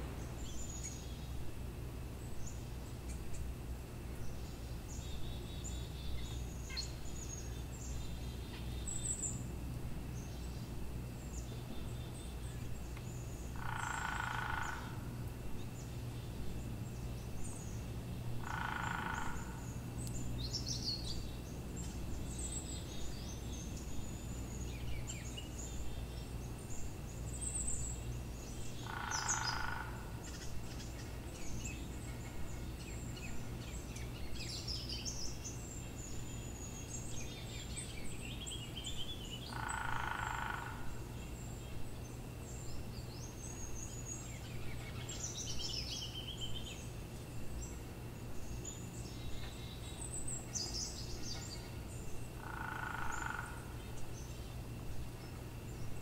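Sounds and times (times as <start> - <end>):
small birds chirping and trilling: 0.0 - 56.0
steady low hum: 0.0 - 56.0.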